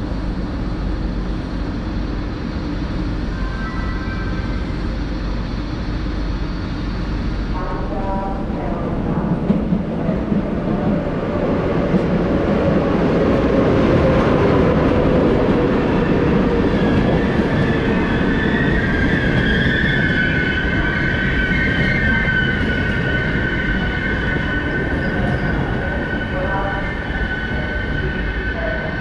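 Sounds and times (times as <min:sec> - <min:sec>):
train rumbling: 0:00.0 - 0:29.0.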